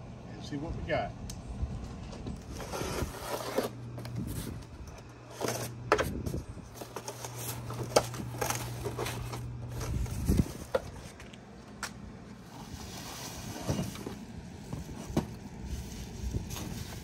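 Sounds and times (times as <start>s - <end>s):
cardboard flaps ripping and rustling: 2.4s - 4.7s, 6.7s - 11.2s.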